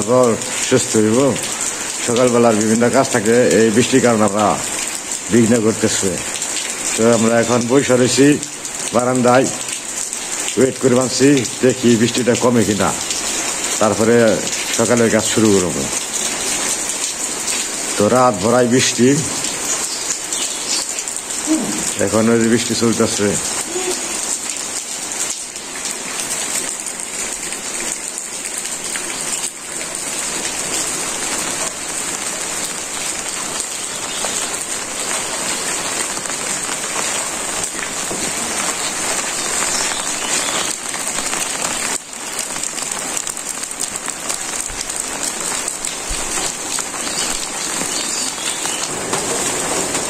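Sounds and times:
steady rain falling: 0.0s - 50.0s.

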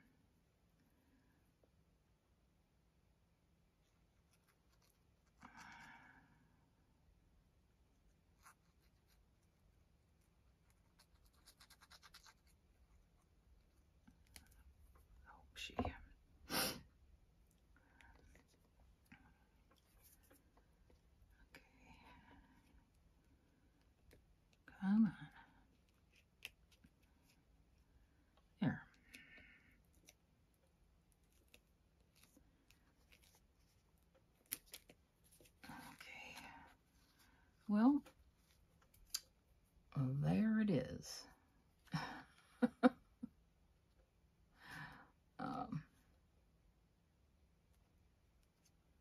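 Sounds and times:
paper rustling under fingers: 10.7s - 13.1s.

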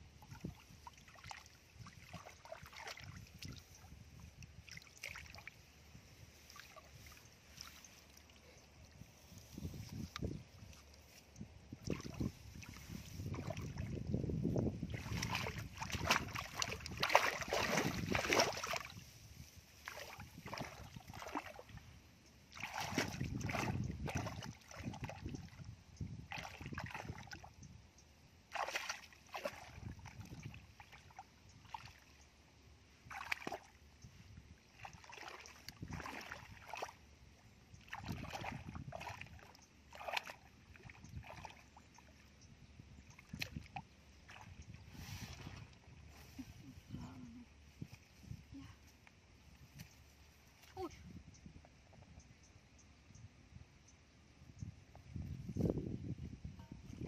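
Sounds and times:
feet splashing through muddy water: 0.3s - 3.9s, 4.5s - 5.7s, 11.7s - 14.2s, 14.8s - 19.1s, 19.8s - 21.8s, 22.5s - 25.6s, 26.2s - 27.5s, 28.5s - 32.1s, 33.0s - 33.8s, 34.5s - 37.0s, 37.8s - 42.2s, 43.1s - 47.1s.

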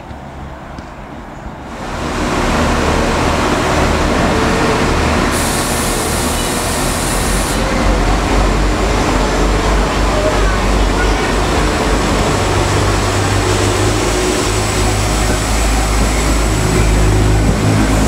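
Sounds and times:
diesel train rumbling: 0.0s - 18.0s
air hiss: 5.2s - 7.6s.

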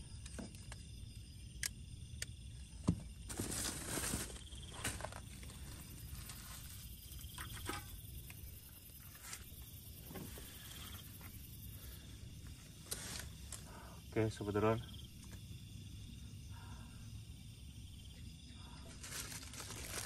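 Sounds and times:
rustling of bags and gear: 3.0s - 8.0s, 12.4s - 13.8s, 18.8s - 20.0s.

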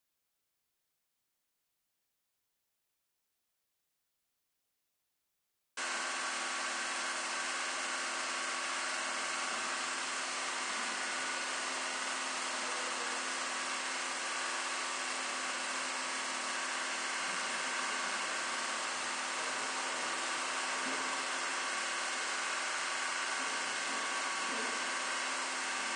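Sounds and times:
electric appliances droning: 5.8s - 25.9s.

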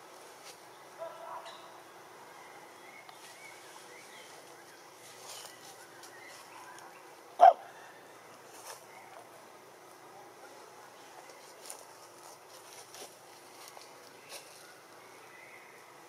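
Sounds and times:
loud animal bark: 7.4s - 7.7s.

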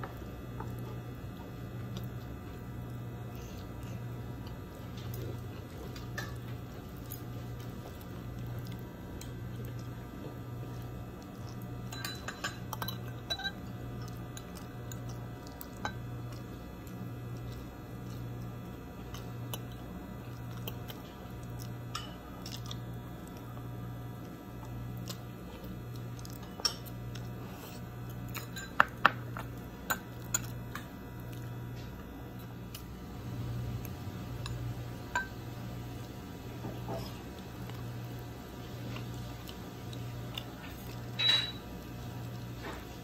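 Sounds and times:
fork clinking against bowl: 11.9s - 13.6s, 41.2s - 41.6s.

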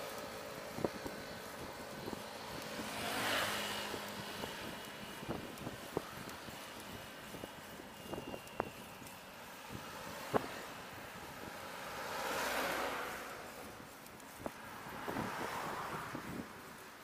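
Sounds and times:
vehicles passing: 0.0s - 17.0s
wind on microphone: 13.4s - 17.0s.

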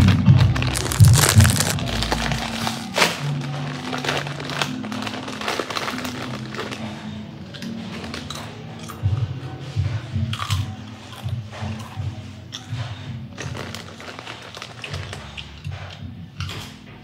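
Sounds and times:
foil chip bag crinkling: 0.0s - 8.4s, 13.4s - 15.5s
background music: 0.0s - 17.0s.

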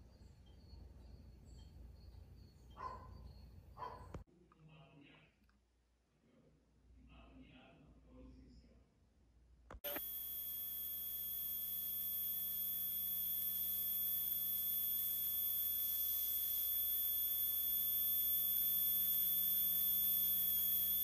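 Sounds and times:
faint low hum: 0.0s - 21.0s
high-pitched test tone: 9.8s - 21.0s
tape hiss: 9.8s - 21.0s.

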